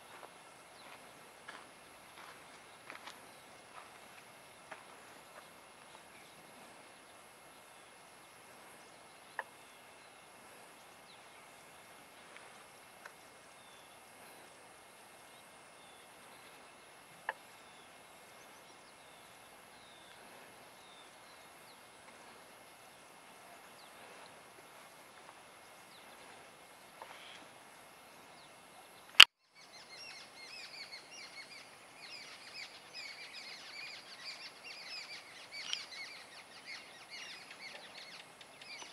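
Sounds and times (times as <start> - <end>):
bird chirps: 28.4 - 38.9.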